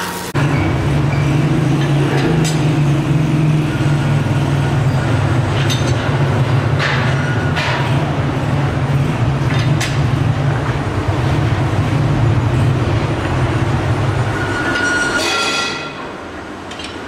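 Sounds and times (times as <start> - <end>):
workshop machinery humming: 0.0 - 15.2
sharp metallic knocks: 5.5 - 8.2.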